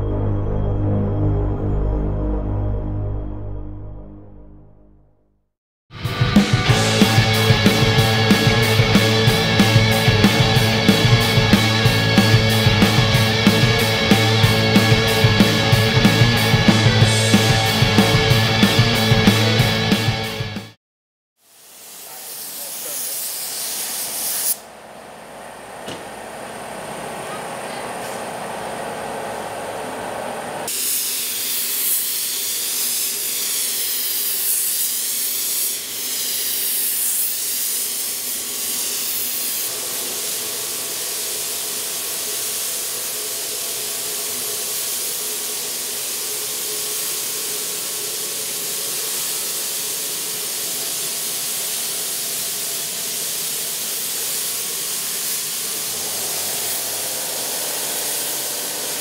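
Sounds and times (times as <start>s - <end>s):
spray gun hissing: 21.4s - 24.6s, 30.7s - 59.0s.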